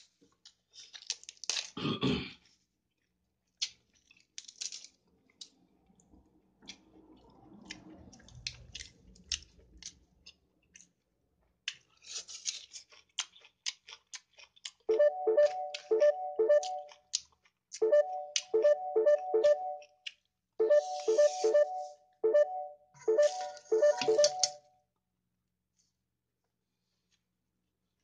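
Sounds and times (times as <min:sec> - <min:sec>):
chewing with lip-smacking: 0:06.6 - 0:11.0, 0:11.6 - 0:14.9, 0:16.6 - 0:18.6
background music with steady beat: 0:14.9 - 0:16.8, 0:17.8 - 0:19.8, 0:20.6 - 0:24.4.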